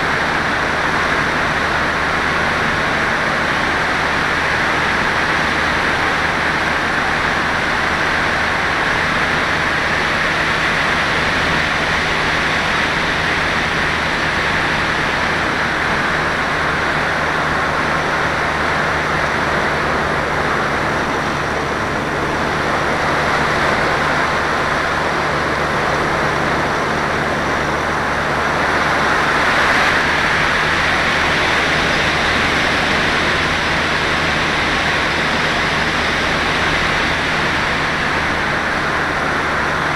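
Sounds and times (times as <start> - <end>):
rushing airflow: 0.0 - 39.9.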